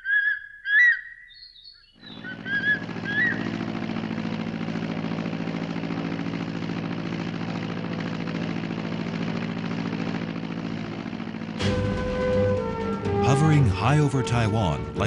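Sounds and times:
eagle whistled call: 0.0 - 3.5
turboprop engines humming: 2.0 - 15.0.

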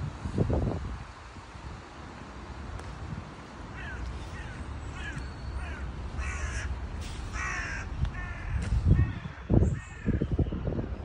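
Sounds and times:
bird calling: 3.7 - 10.6.

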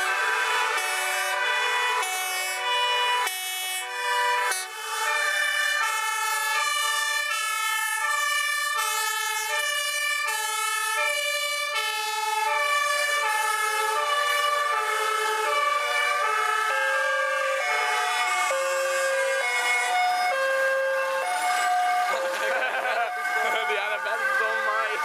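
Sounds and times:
fire engine two-tone sirens: 0.0 - 25.0.

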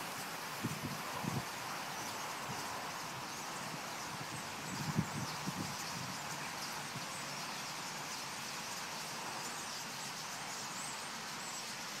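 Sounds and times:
constant hiss: 0.0 - 12.0.

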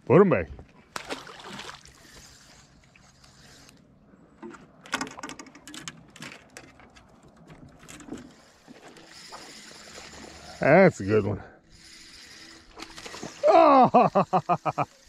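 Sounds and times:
fishing reel clicking and whirring: 1.9 - 3.8, 7.8 - 15.0.

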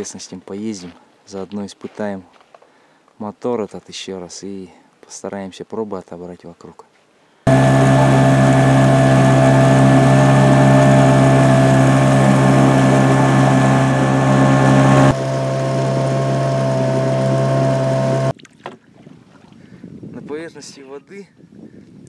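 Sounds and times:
outboard motor running: 7.5 - 18.3.

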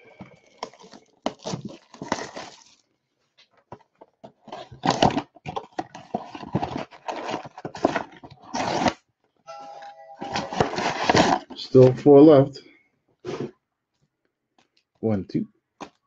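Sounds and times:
cardboard boxes rustling: 0.0 - 2.8, 3.6 - 9.0, 10.2 - 11.9.

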